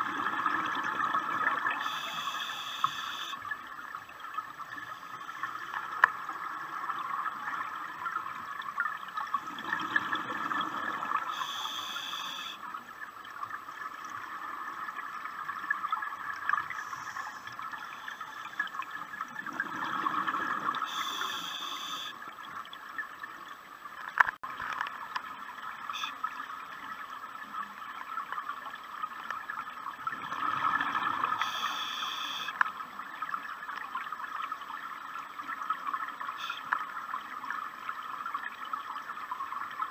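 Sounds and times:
exhaled bubbles rumbling: 0.0s - 1.8s, 6.2s - 11.3s, 18.6s - 20.9s, 30.0s - 31.4s
regulator hiss: 1.8s - 3.4s, 11.3s - 12.6s, 20.8s - 22.2s, 31.4s - 32.5s.

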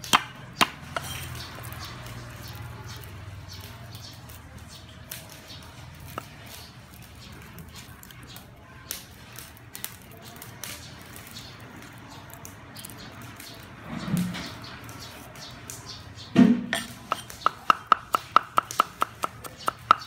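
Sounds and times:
garlic cloves being peeled: 16.7s - 20.0s.

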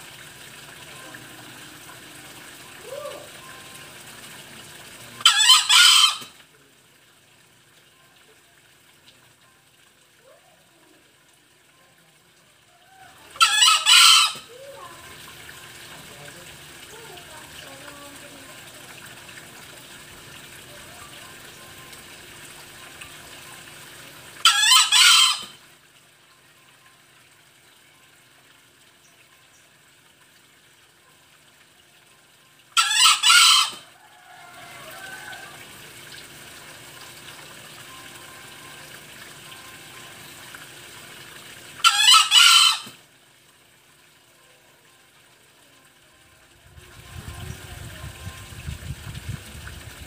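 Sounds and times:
junglefowl cock crowing: 5.2s - 6.3s, 12.7s - 14.5s, 24.4s - 25.6s, 32.8s - 35.6s, 41.8s - 43.0s.

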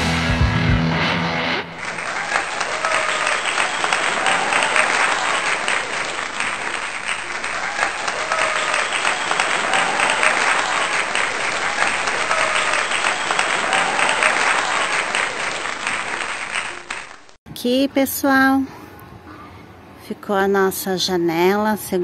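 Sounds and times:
faint cheering voices: 1.6s - 17.2s
applause: 1.7s - 17.4s.

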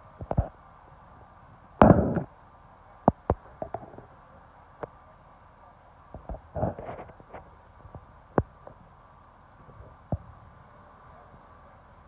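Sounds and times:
sharp cracks and knocks: 1.8s - 2.3s.

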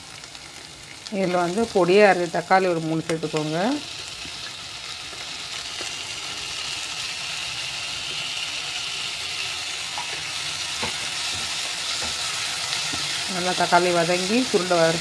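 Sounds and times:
onions sizzling in a pan: 0.0s - 15.0s.

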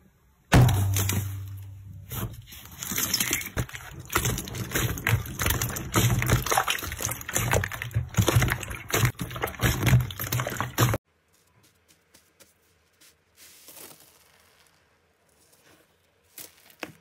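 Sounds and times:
slime squelching: 0.6s - 11.0s.

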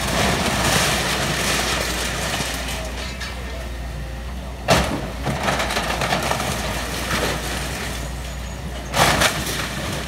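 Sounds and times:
debris crashing: 0.0s - 3.2s, 8.8s - 10.0s
wood and metal crunching: 0.0s - 3.5s, 4.7s - 10.0s.

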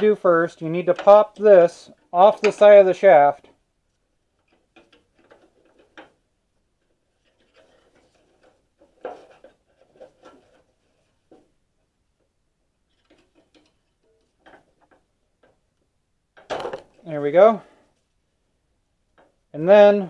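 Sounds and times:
hand tool clicking and tapping metal: 0.9s - 1.5s.

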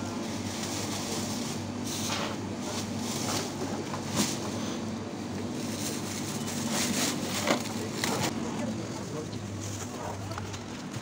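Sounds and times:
plastic bags rustling: 5.4s - 8.3s.

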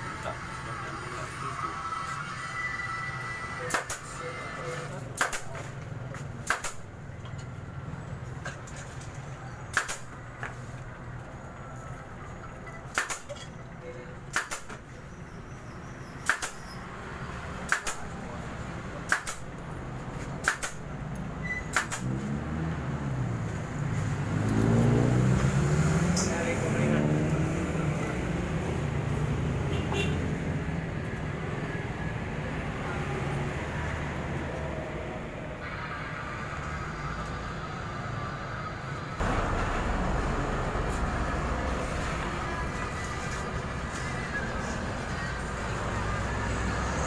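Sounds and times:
sharp click: 3.7s - 4.1s, 5.2s - 5.6s, 6.4s - 6.8s, 9.7s - 10.1s, 12.9s - 13.3s, 14.3s - 14.8s, 16.2s - 16.6s, 17.7s - 18.0s, 19.1s - 19.5s, 20.4s - 20.8s, 21.7s - 22.1s
pneumatic staple gun firing: 14.3s - 14.7s, 16.2s - 16.6s, 20.4s - 20.8s, 21.7s - 22.1s
air compressor drone: 35.6s - 43.8s
low hum: 39.2s - 42.8s.

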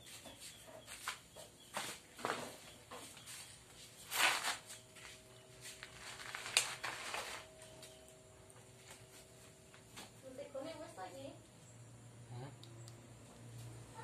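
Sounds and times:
scraping rustle: 1.8s - 7.8s.

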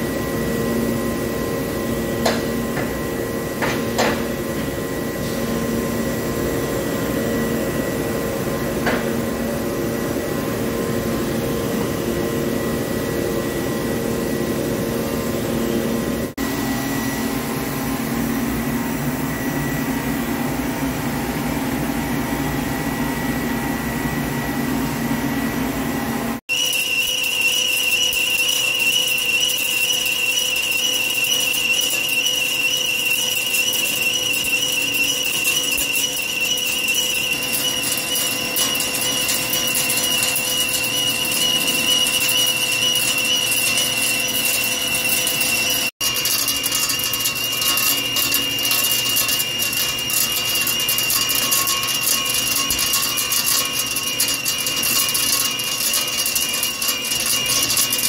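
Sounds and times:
high whistle of metal cutting: 0.0s - 20.5s, 26.5s - 58.0s
lathe humming: 26.5s - 58.0s.

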